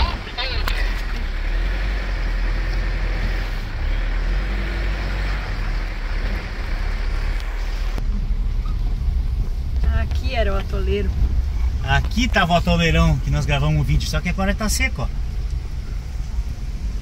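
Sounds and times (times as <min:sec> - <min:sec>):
car engine rumble: 0:00.0 - 0:17.0
tyre and road noise: 0:00.0 - 0:17.0.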